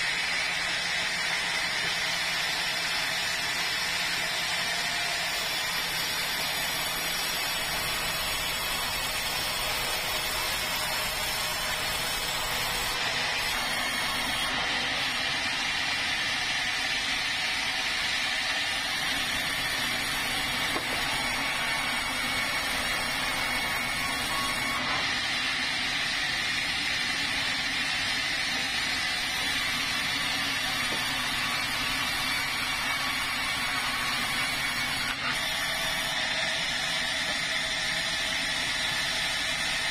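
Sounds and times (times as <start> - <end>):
sawmill saw whining: 0.0 - 39.9.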